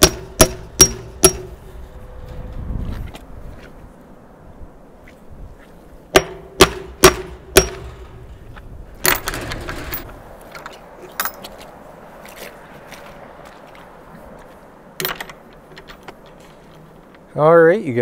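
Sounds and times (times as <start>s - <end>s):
gate latch clatter: 9.0s - 10.1s, 15.0s - 16.2s
metal gate latch clanking: 9.0s - 10.1s, 15.0s - 16.2s.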